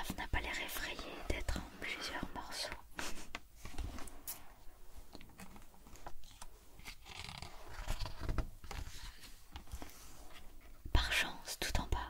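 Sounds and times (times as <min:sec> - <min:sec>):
book page rustling: 0:05.1 - 0:10.8.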